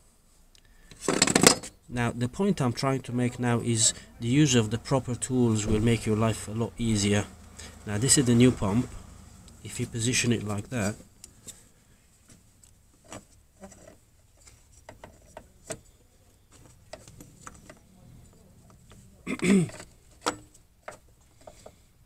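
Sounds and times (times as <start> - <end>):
light clicks and knocks of handling parts: 8.9 - 22.0.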